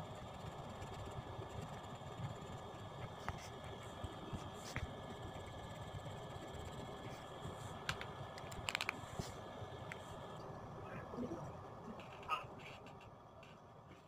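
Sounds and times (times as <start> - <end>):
thin steady whine: 0.0 - 14.0
small clicks: 7.8 - 9.0.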